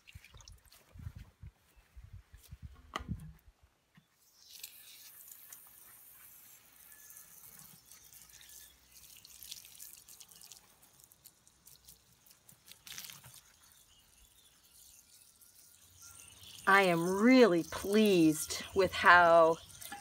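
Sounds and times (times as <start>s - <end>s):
water splashing and dripping: 0.0s - 0.9s, 7.5s - 20.0s.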